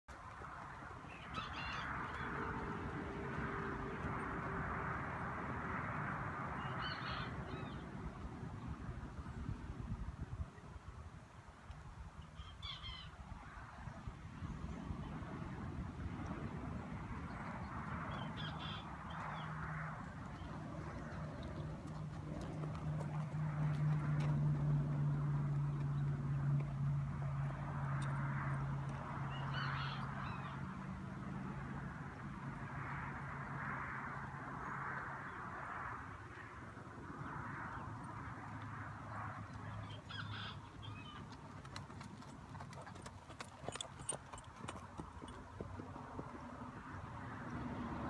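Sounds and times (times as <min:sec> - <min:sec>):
steady outdoor noise: 0:00.1 - 0:48.0
birds calling: 0:18.1 - 0:23.1, 0:39.5 - 0:41.4.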